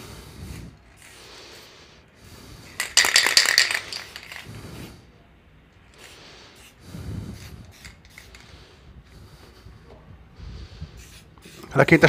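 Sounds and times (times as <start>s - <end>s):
spray paint can hissing: 0.2s - 1.7s, 2.3s - 4.9s, 5.9s - 8.7s, 11.0s - 12.0s.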